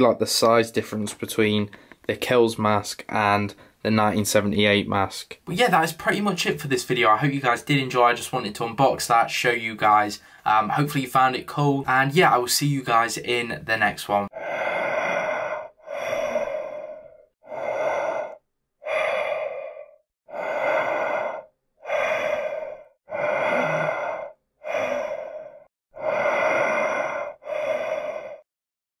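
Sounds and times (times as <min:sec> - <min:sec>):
heavy slow breathing: 0:14.3 - 0:28.5.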